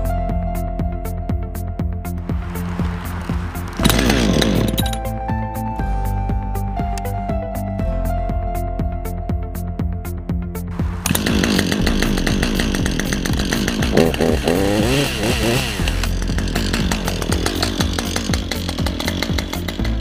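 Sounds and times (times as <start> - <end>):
chainsaw engine revving: 2.4 - 5.1, 10.9 - 20.0.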